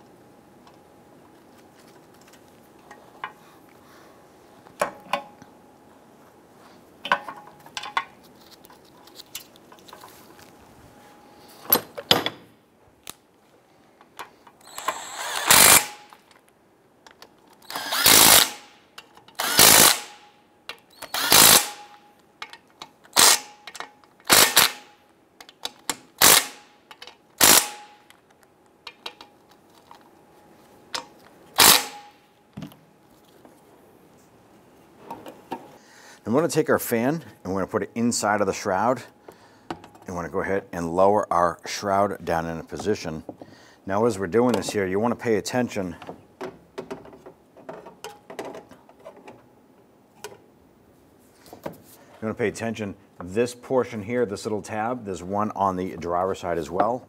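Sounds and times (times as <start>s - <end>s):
impact wrench bursts: 14.6s - 16.2s, 17.6s - 18.8s, 19.4s - 20.2s, 20.9s - 22.0s, 23.1s - 25.0s, 26.2s - 26.7s, 27.4s - 28.0s, 31.6s - 32.2s
clicks of metal parts handled: 22.4s - 24.3s, 26.9s - 27.2s.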